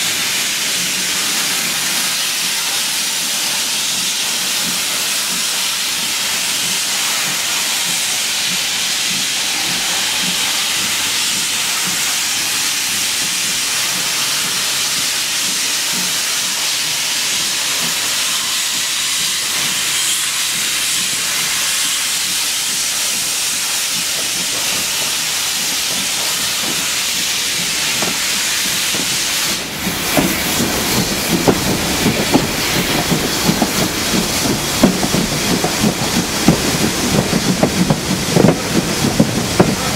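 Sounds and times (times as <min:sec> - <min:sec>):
steam hissing: 0:00.0 - 0:39.9
train rumbling: 0:00.0 - 0:39.9
wind buffeting microphone: 0:28.9 - 0:39.9.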